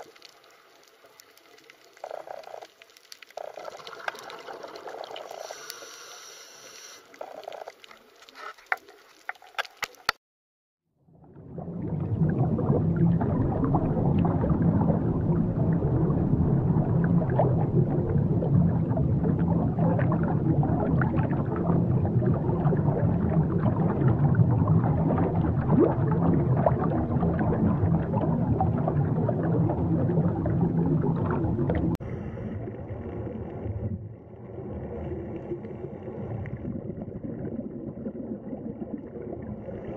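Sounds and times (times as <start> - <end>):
crackling bubbling rumble: 0.0 - 10.2, 11.1 - 39.9
soft underwater water sound: 0.0 - 10.2, 10.9 - 39.9
underwater hiss: 5.2 - 7.2.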